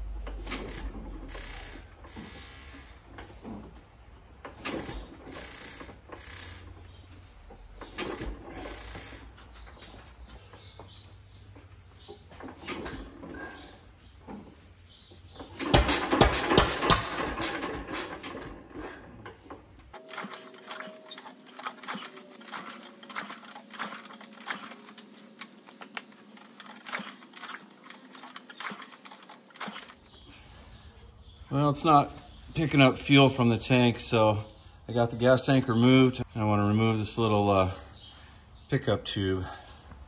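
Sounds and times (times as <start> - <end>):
engine cranked by hand clicking: 0.0 - 30.6.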